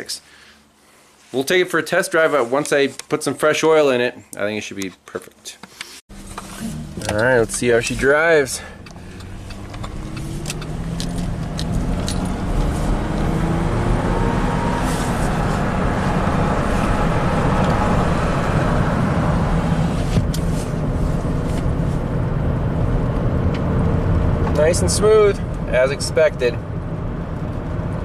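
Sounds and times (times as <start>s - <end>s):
road noise: 5.7s - 28.0s
car engine accelerating: 6.1s - 28.0s.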